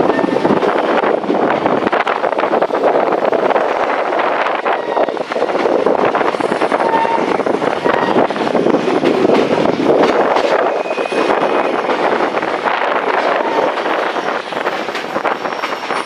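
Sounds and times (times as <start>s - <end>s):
train wheels rumbling on rails: 0.0s - 16.0s
high wheel squeal: 10.6s - 11.9s, 15.2s - 16.0s.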